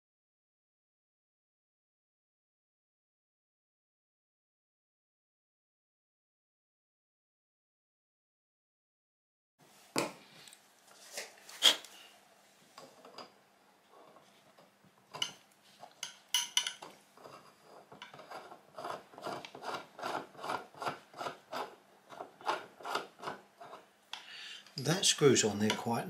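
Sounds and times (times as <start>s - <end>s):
metal threads grating: 16.0s - 23.9s.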